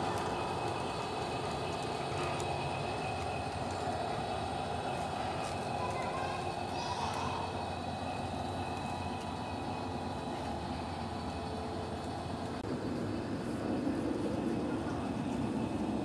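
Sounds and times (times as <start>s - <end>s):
model train motor humming: 0.0s - 16.0s
wheels rolling on rails: 0.0s - 16.0s.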